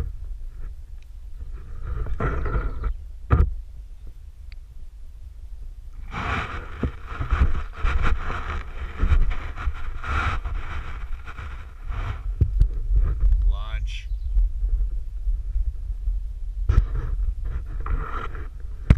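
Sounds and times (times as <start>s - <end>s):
rustling scraping hiss with clicks: 0.0s - 2.9s, 5.9s - 14.0s, 16.7s - 18.9s
microphone handling rumble: 0.0s - 4.2s, 5.9s - 18.9s
wind on microphone: 0.0s - 18.9s.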